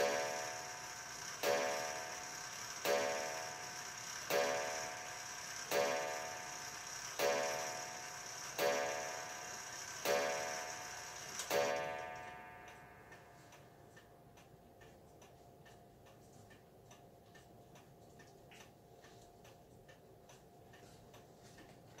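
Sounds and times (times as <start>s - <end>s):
clock striking on wire gong: 0.0s - 13.3s
clock ticking: 0.0s - 22.0s.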